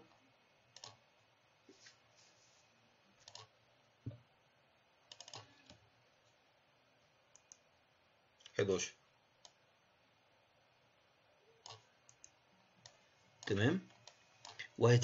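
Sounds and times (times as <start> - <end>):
computer mouse and keyboard clicks: 0.7 - 1.0, 3.2 - 3.5, 5.1 - 5.8, 7.3 - 7.6, 11.6 - 14.7.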